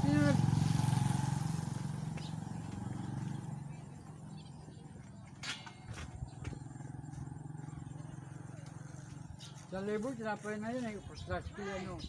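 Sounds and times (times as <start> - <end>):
small engine humming: 0.0 - 10.2.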